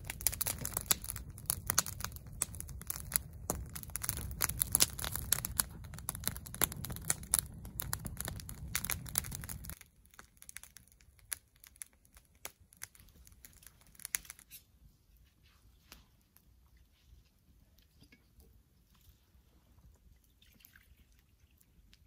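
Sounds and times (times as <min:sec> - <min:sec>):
campfire crackling and popping: 0:00.0 - 0:14.6.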